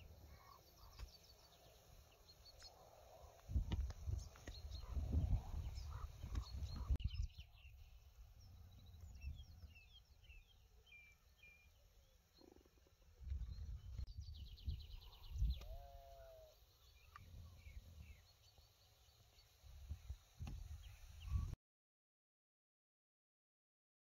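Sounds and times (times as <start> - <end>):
small birds chirping: 0.0 - 21.6
wind rumble on microphone: 3.4 - 10.4, 13.2 - 16.2, 17.0 - 18.2, 19.7 - 21.6.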